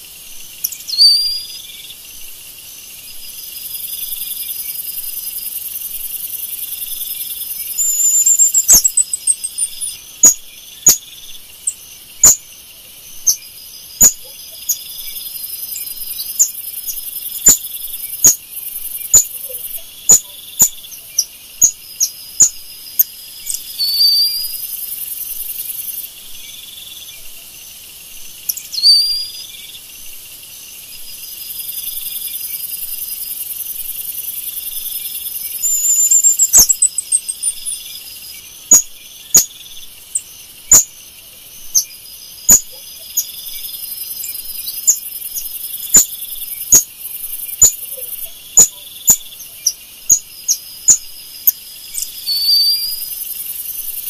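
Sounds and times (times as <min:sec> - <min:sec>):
high insect drone: 0:00.0 - 0:54.0
monkeys chirping and whistling: 0:07.7 - 0:11.0, 0:23.5 - 0:24.6, 0:35.5 - 0:37.6, 0:52.0 - 0:53.0.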